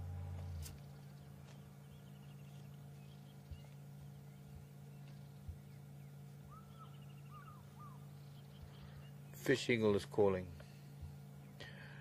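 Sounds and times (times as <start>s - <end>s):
steady low hum: 0.0s - 12.0s
faint high bird trills: 1.9s - 9.5s
distant eagle yelping call: 6.4s - 9.2s.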